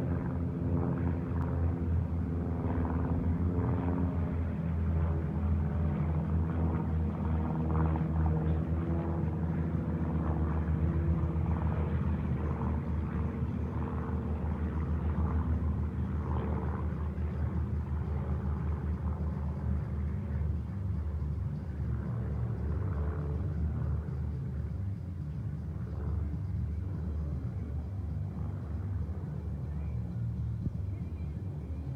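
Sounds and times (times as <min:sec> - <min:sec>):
propeller planes droning overhead: 0:00.0 - 0:31.9.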